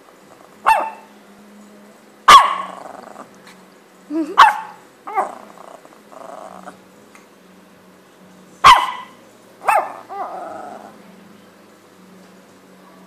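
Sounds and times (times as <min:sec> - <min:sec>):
small dog barking: 0:00.6 - 0:01.1, 0:02.3 - 0:02.8, 0:04.4 - 0:05.4, 0:08.6 - 0:10.4
dog growling: 0:02.6 - 0:03.6, 0:05.0 - 0:06.8, 0:09.7 - 0:11.0.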